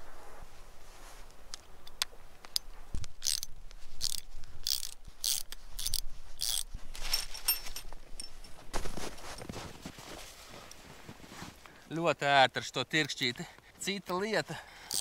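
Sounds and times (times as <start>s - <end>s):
ratchet wrench clicking: 3.2s - 6.7s.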